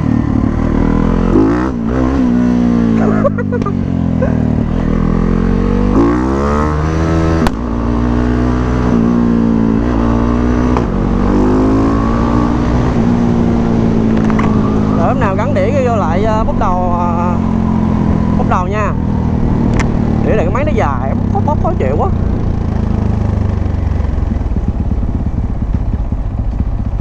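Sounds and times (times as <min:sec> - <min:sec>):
motorcycle engine revving: 0:00.0 - 0:27.0
sharp click: 0:19.7 - 0:19.9.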